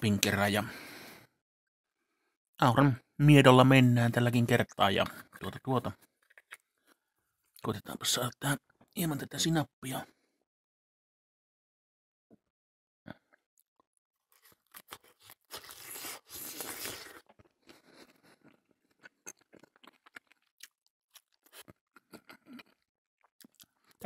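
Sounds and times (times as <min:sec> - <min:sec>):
chewing and crunching: 0:05.0 - 0:07.6, 0:14.2 - 0:24.0.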